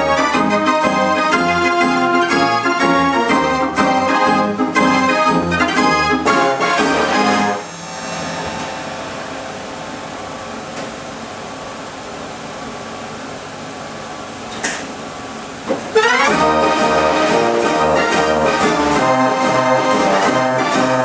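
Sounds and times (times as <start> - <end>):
street organ playing: 0.0 - 10.0, 15.9 - 21.0
steady hiss: 7.5 - 13.2.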